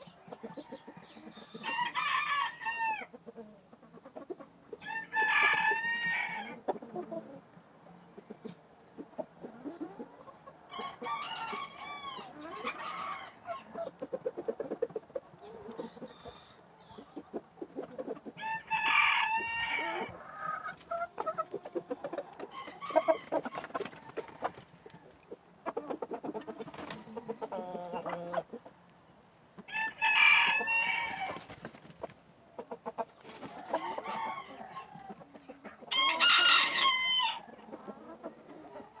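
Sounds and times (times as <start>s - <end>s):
chickens clucking: 0.0s - 39.0s
roosters crowing: 0.3s - 3.2s, 4.7s - 7.4s, 9.7s - 14.0s, 17.9s - 25.2s, 29.6s - 31.7s, 33.2s - 39.0s.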